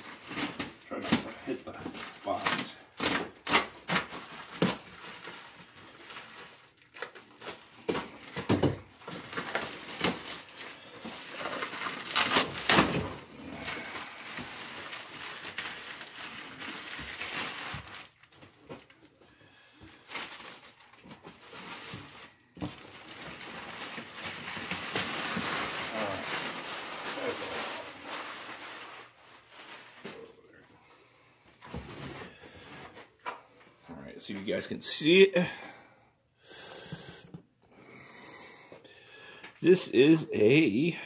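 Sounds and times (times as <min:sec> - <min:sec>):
plastic wrapping crinkling and tearing: 0:00.0 - 0:19.1, 0:19.8 - 0:30.6.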